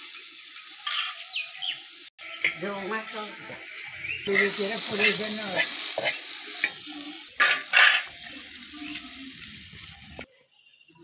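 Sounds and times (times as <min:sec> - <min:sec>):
light sizzle: 0:00.0 - 0:11.0
metal spatula scraping pan: 0:07.4 - 0:08.9.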